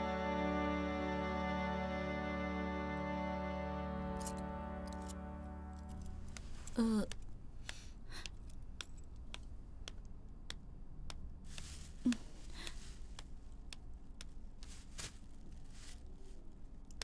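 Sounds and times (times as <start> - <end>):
light clicking footsteps: 5.8 - 17.0
rustling: 11.4 - 13.6, 14.2 - 16.7.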